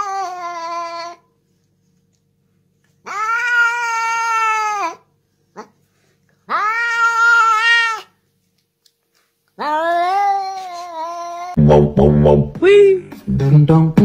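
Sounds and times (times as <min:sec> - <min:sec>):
cat meowing: 0:03.1 - 0:05.0, 0:06.5 - 0:08.1, 0:09.6 - 0:11.6.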